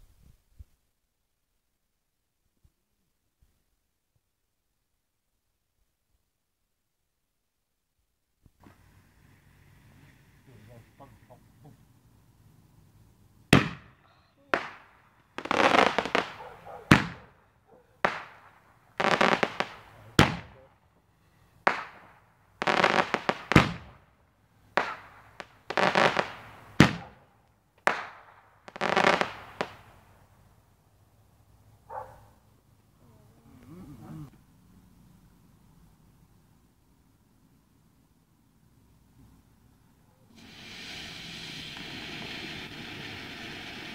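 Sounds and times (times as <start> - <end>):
faint background hiss: 0.0 - 43.9
fireworks crackling: 8.4 - 31.2, 40.3 - 43.9
fireworks bangs: 8.5 - 11.8, 13.5 - 20.8, 21.6 - 30.4, 40.3 - 43.9.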